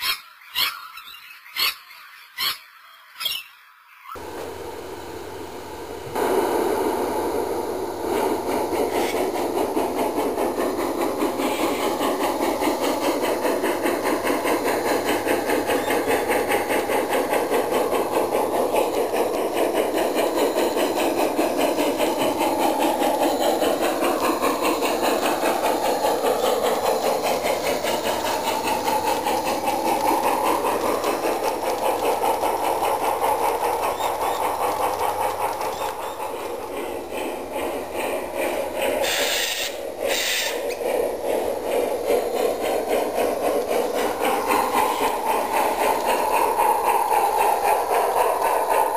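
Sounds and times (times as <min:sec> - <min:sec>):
model steam locomotive chuffing: 0:04.2 - 0:48.9.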